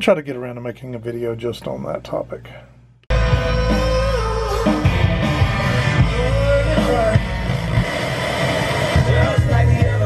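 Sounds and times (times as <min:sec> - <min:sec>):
rock song with singer: 0:03.1 - 0:10.0.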